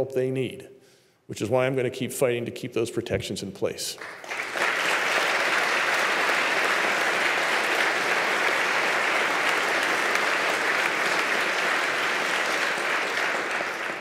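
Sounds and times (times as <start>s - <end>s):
crowd applauding: 4.0s - 14.0s.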